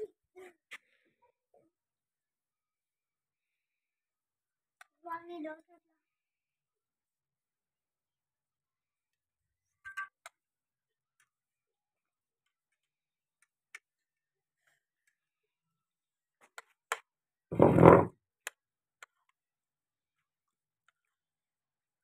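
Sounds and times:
metal spoon scraping ceramic plate: 17.6 - 18.1.

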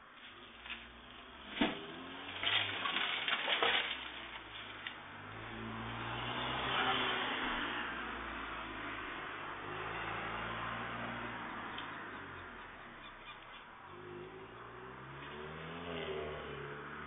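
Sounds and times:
car approaching: 0.0 - 17.0
rustling and clattering: 0.1 - 5.0.

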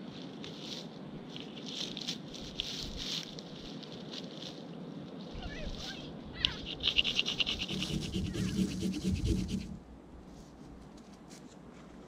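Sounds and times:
knife scraping dry grass: 0.0 - 4.6, 6.7 - 10.6.

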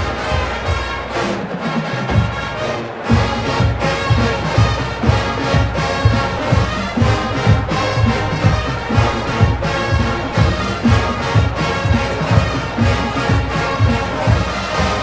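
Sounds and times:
brass section playing tune: 0.0 - 15.0
bass drum beat: 3.1 - 15.0.

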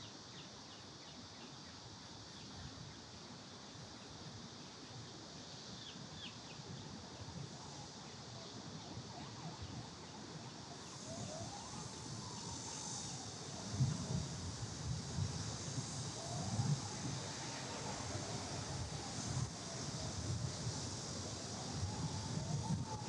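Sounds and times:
high steady hiss: 0.0 - 23.0
distant siren wailing: 7.6 - 15.0, 15.8 - 23.0.

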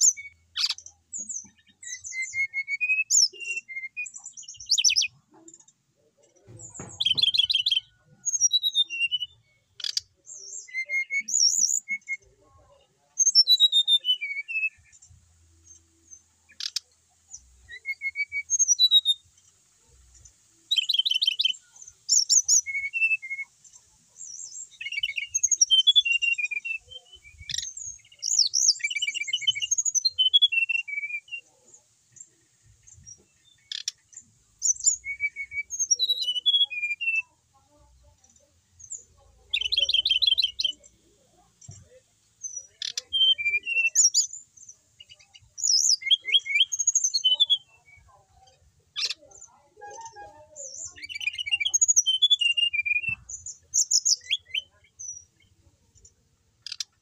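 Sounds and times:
bird singing whistled phrases: 0.0 - 5.2, 6.9 - 12.4, 13.2 - 14.9, 17.6 - 19.2, 20.7 - 23.6, 24.3 - 31.6, 34.6 - 37.3, 38.9 - 40.8, 42.4 - 44.4, 45.0 - 48.1, 49.0 - 55.4.

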